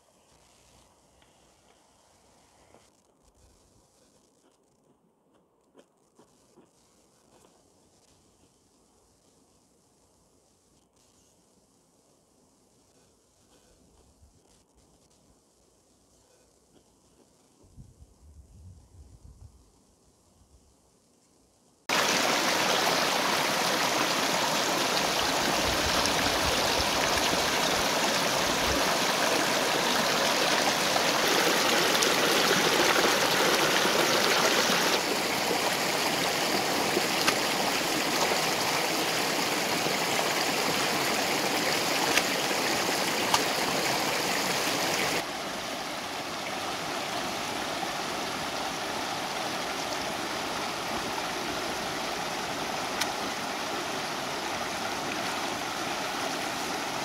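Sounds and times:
river rushing over stones: 21.9 - 57.0.

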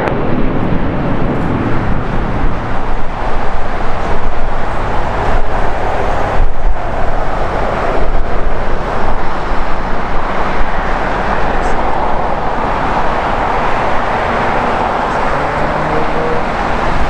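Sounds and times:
jet engines roaring: 0.0 - 17.0
wind buffeting microphone: 0.0 - 17.0.

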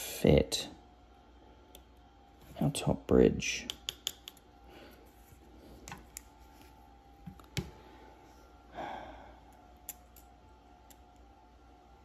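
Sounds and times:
tweezers clicking on metal parts: 3.6 - 4.5, 9.8 - 11.2.

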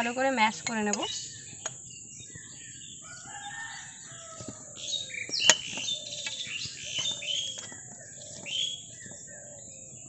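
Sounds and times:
small birds chirping: 0.0 - 10.0
rooster crowing: 2.8 - 5.2.

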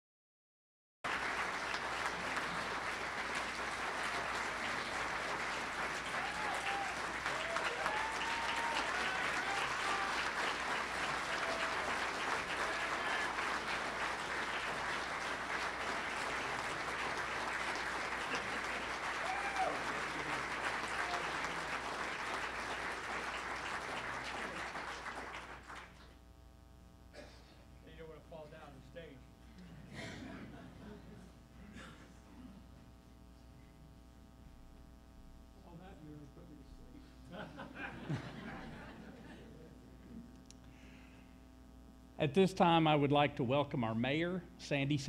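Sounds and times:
audience clapping: 1.0 - 26.2
crowd calling out: 6.0 - 13.8, 19.0 - 21.7.

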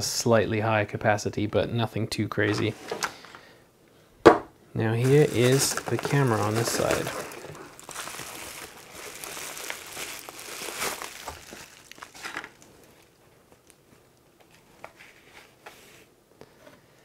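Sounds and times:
bubble wrap crinkling: 4.9 - 15.2.

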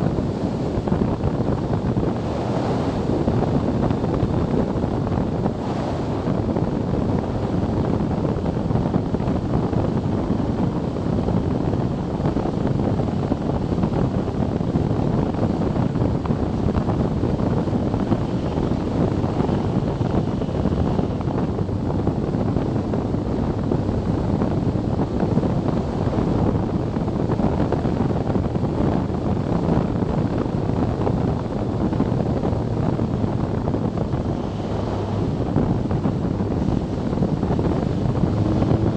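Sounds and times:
road noise: 0.0 - 38.9
wind rushing over microphone: 0.0 - 38.9
motorcycle engine: 34.0 - 38.9.

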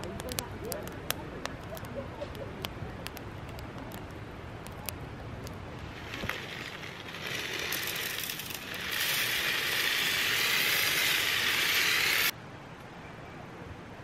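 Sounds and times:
granules pouring into metal tray: 5.9 - 12.3.

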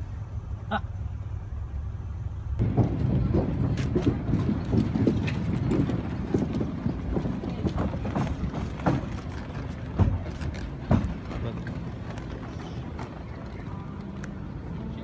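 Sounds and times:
low rumble: 0.0 - 15.0
footsteps on wooden boards: 2.6 - 14.4
car tyres rolling over boards: 2.6 - 14.6.

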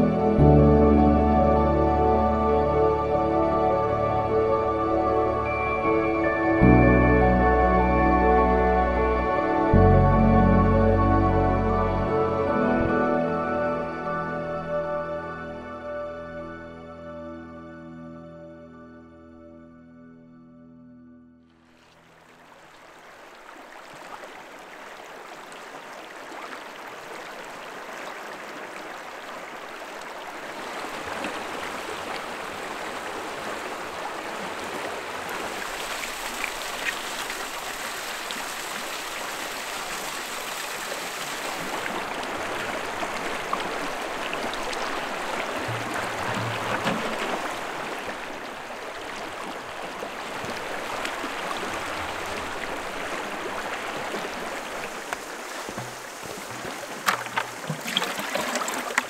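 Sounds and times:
water trickles and splashes: 21.6 - 59.0
river water rushing over rocks: 22.0 - 59.0.

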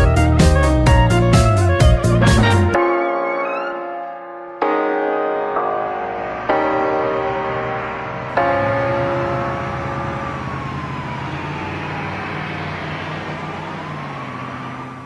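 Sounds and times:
held music chord: 0.0 - 12.8
street noise hum: 5.6 - 15.0
siren wailing: 8.4 - 15.0.

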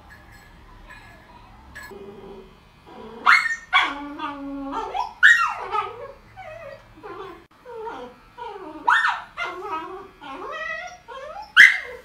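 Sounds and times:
dog whimpering and yipping: 3.2 - 12.0
dog yelping: 3.2 - 12.0.

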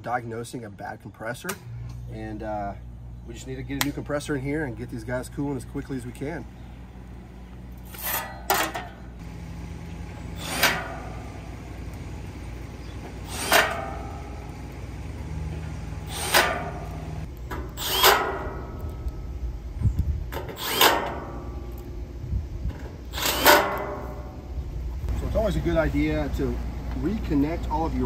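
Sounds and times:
short low hum: 1.6 - 27.3
metal tools clacking: 7.9 - 9.2.

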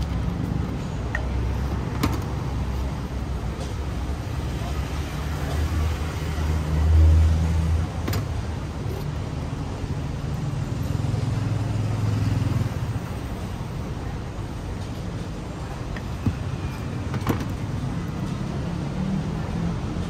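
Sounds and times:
vehicles passing close by: 0.0 - 20.0.

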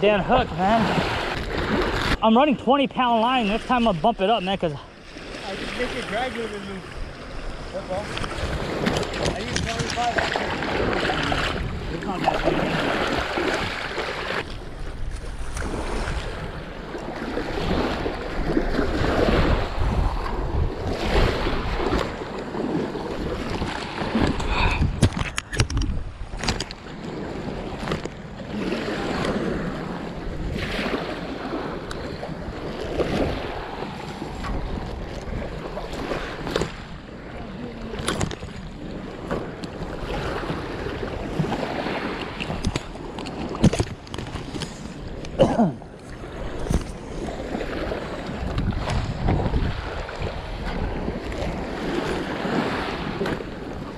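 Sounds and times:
wind buffeting microphone: 0.0 - 53.9
small waves on gravel shore: 4.6 - 24.5, 46.0 - 53.9.

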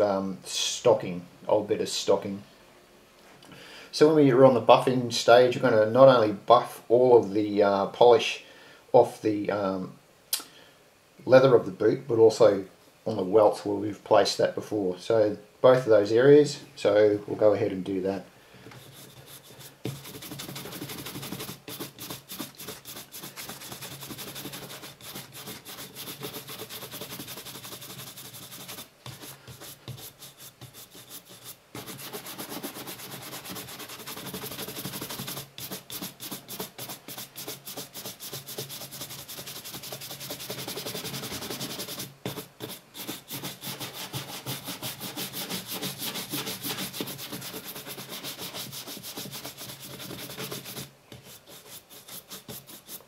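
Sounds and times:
brush buffing leather boot: 18.9 - 53.0.

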